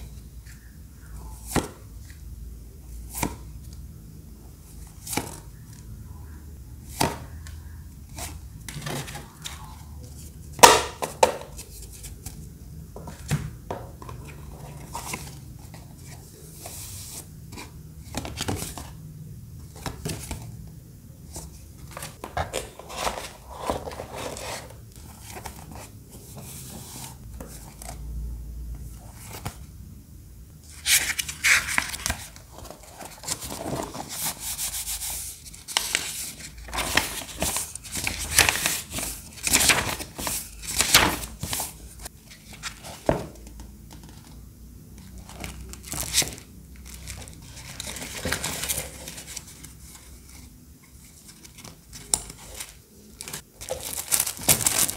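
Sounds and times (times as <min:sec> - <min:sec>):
paper rustling and crinkling: 0:21.3 - 0:28.0, 0:30.7 - 0:44.3, 0:45.1 - 0:54.9.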